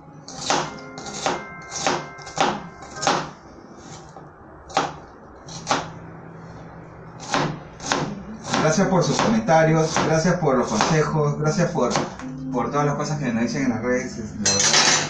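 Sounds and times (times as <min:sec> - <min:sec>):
knife chopping on plastic board: 0:07.2 - 0:11.0.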